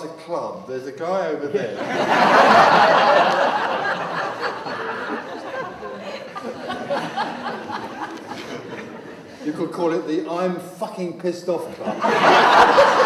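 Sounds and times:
audience laughing: 0:01.5 - 0:09.5, 0:11.8 - 0:13.0.

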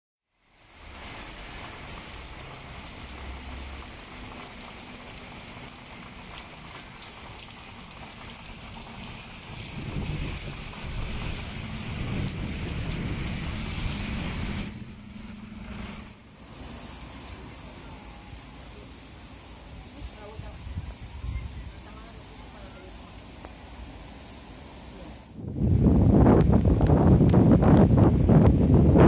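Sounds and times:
rain falling on street: 0:00.2 - 0:25.5
bus engine rumbling: 0:08.2 - 0:29.0
high squeal: 0:12.5 - 0:16.2.

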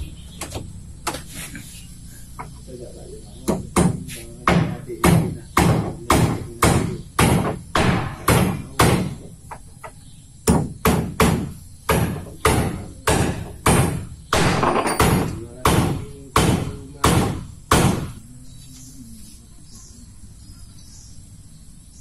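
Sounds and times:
hammer blows ringing: 0:03.4 - 0:09.3, 0:10.4 - 0:18.2.

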